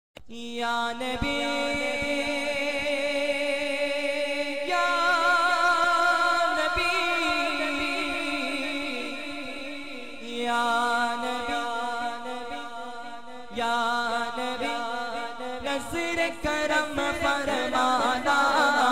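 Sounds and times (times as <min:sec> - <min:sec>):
man singing unaccompanied: 0:00.2 - 0:18.9.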